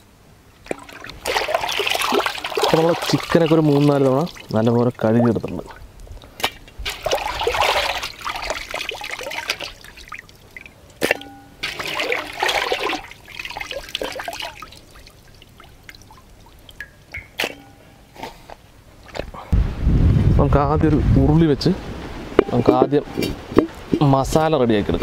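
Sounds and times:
water trickling into metal pot: 0:00.7 - 0:17.8.

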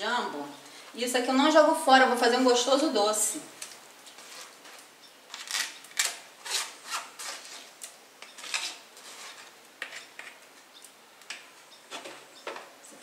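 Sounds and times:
spoon scraping mesh sieve: 0:08.3 - 0:10.4.

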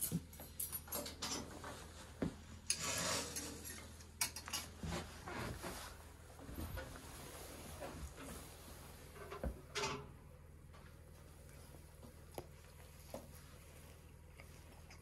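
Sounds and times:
dishes and cutlery clinking: 0:00.0 - 0:01.8, 0:02.7 - 0:04.8
short scraping rub: 0:02.7 - 0:03.8.

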